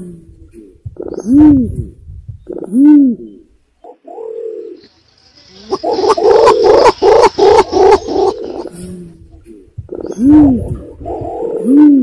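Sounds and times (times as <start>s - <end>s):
pigeon cooing: 2.5s - 4.8s, 5.6s - 12.0s
pulsed pigeon call notes: 2.5s - 12.0s.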